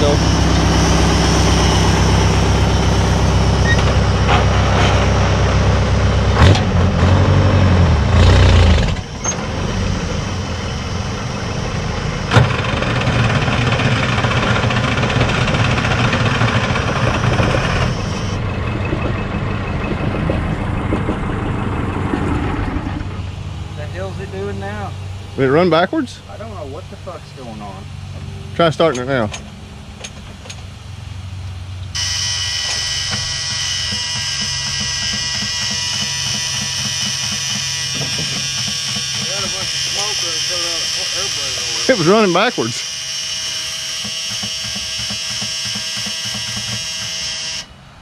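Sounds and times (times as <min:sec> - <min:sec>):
diesel engine running: 0:00.0 - 0:48.0
sharp knocks: 0:32.7 - 0:39.8, 0:44.0 - 0:47.2.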